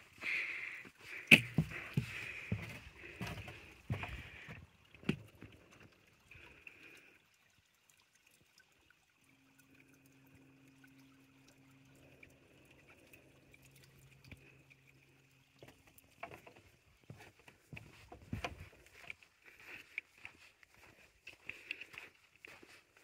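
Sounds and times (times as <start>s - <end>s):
footsteps on a dirt trail: 1.2s - 5.2s, 16.4s - 23.0s.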